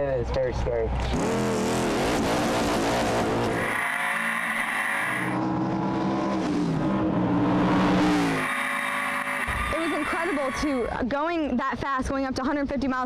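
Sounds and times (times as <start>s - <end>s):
race car engine: 0.7s - 11.0s.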